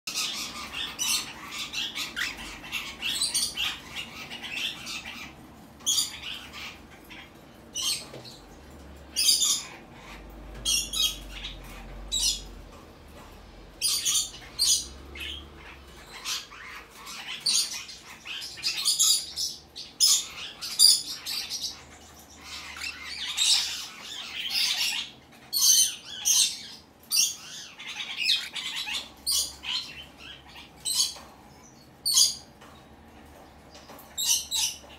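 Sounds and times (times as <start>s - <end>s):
cockatiel squawking: 22.4s - 29.9s.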